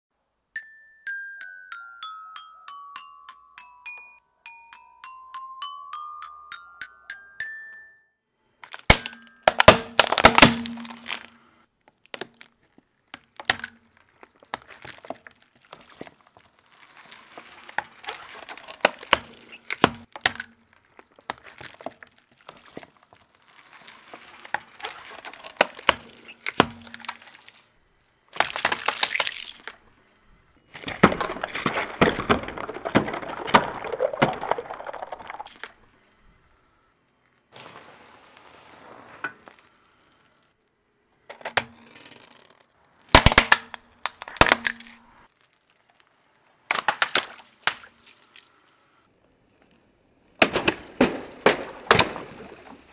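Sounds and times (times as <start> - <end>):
toy xylophone cracking: 0.6 - 8.0, 8.7 - 11.1
plastic bottles crunching: 8.7 - 11.2.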